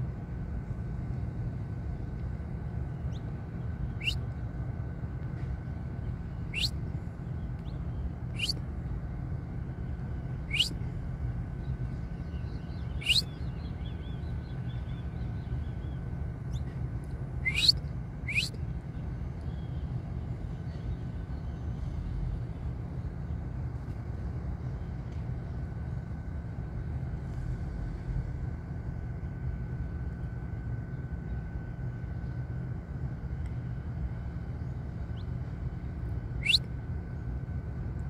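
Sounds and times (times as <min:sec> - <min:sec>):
steady low rumble: 0:00.0 - 0:38.0
finch chirping: 0:06.5 - 0:06.7, 0:08.4 - 0:08.6, 0:10.5 - 0:10.7, 0:12.9 - 0:13.3, 0:17.4 - 0:18.5.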